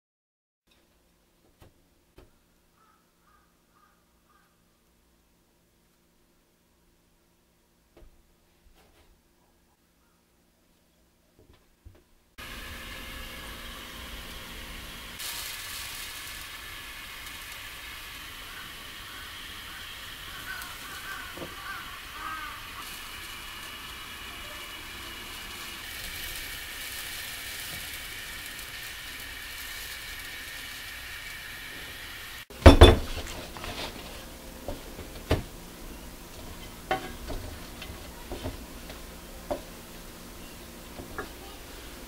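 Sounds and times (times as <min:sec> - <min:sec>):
gas burner hissing: 0:12.4 - 0:42.0
loud clunk: 0:32.6 - 0:33.2
saucepan and utensils knocking: 0:32.6 - 0:33.2.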